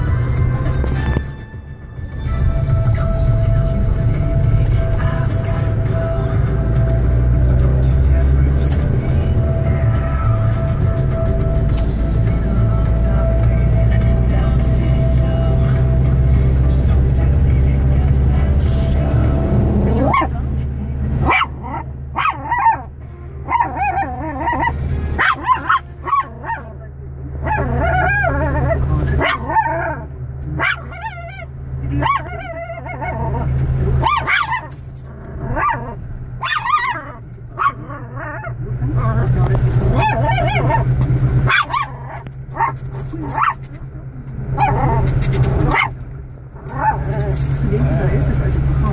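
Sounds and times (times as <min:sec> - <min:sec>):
low car hum: 0:00.0 - 0:48.9
small dog barking: 0:21.2 - 0:22.9, 0:25.2 - 0:26.7, 0:30.6 - 0:31.2, 0:34.0 - 0:34.7, 0:35.5 - 0:38.1, 0:41.5 - 0:43.6, 0:45.7 - 0:45.9
small dog yapping and whining: 0:21.2 - 0:22.9, 0:23.5 - 0:26.7, 0:27.4 - 0:34.8, 0:35.4 - 0:39.1, 0:39.9 - 0:43.6, 0:44.6 - 0:46.0.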